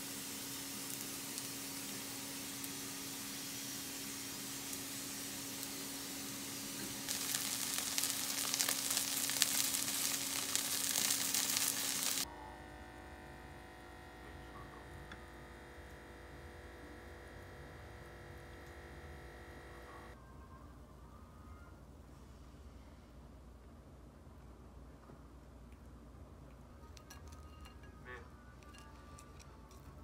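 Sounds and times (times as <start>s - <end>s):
food sizzling in a frying pan: 0.0s - 12.3s
low electrical hum: 0.0s - 30.0s.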